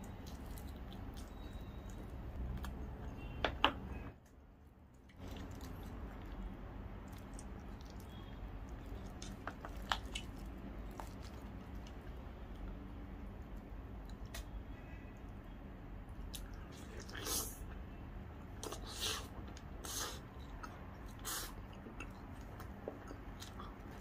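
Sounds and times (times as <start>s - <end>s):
close chewing: 0.0s - 3.3s, 5.0s - 12.8s, 16.1s - 17.7s, 18.6s - 24.0s.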